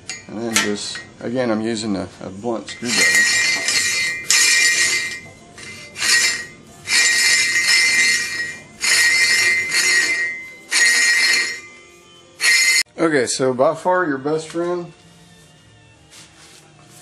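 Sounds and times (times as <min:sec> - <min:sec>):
screwdriver scraping rubber tire: 0:02.8 - 0:11.7.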